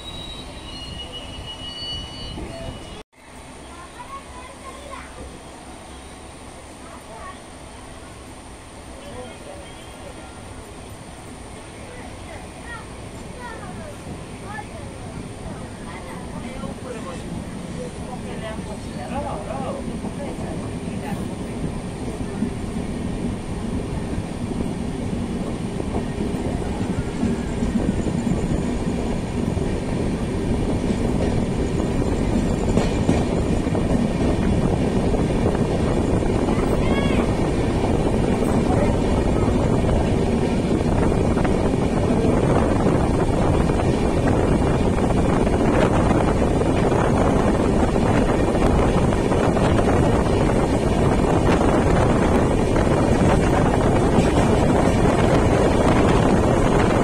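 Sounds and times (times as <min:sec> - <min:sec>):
train wheels rumbling on track: 0:00.0 - 0:57.0
wind on microphone: 0:23.3 - 0:57.0.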